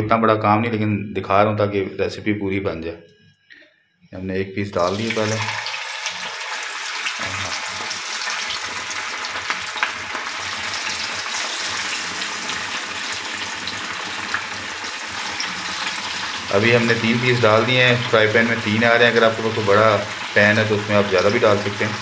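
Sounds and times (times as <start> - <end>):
fish sizzling in hot oil: 5.0 - 22.0.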